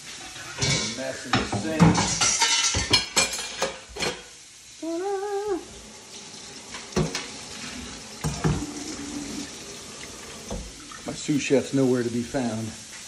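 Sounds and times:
tap water running into colander: 0.0 - 4.2, 4.8 - 13.0
dishes clattering in metal sink: 0.3 - 4.3, 6.6 - 11.4
person humming: 4.8 - 5.8.

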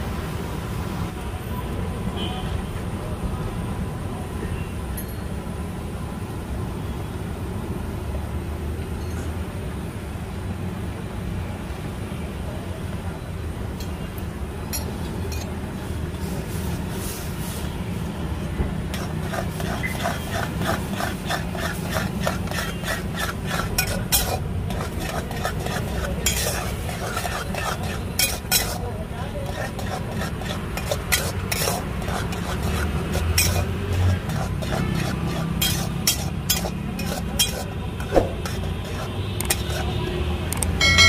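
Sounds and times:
gas burner rushing: 18.4 - 39.8
spatula scraping a wok: 18.8 - 41.0
metal clinks: 40.8 - 41.0.

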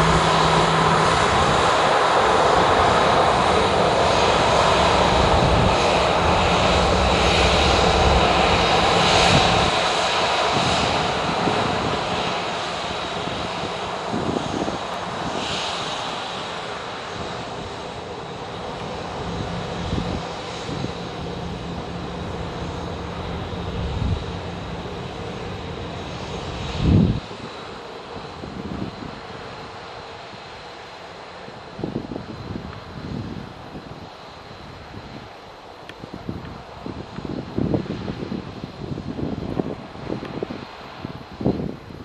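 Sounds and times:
jet engines rushing with whine: 0.0 - 42.0.

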